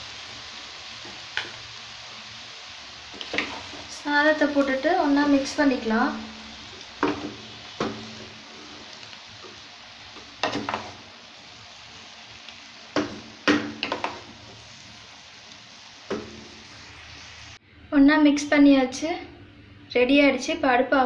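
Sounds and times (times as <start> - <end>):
rice sizzling in a frying pan: 0.0 - 17.6
spatula knocking and scraping a pan: 3.2 - 3.9, 7.0 - 8.8, 10.2 - 11.0, 12.9 - 14.6, 16.1 - 16.5.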